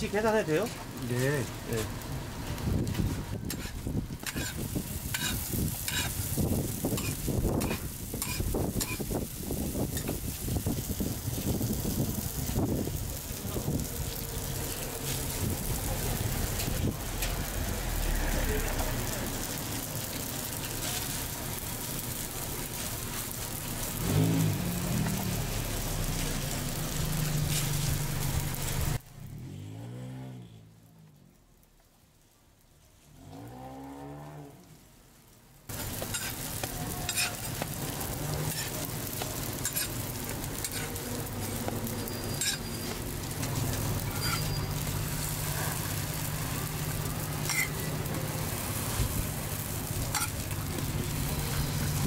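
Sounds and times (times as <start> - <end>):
food sizzling in oil: 0.0 - 30.0, 35.6 - 52.0
street hiss: 0.0 - 52.0
metal tools scraping griddle: 3.4 - 6.2, 35.8 - 45.9, 47.4 - 48.1, 50.0 - 51.8
engine revving: 14.2 - 19.5, 24.0 - 30.8, 33.2 - 34.6.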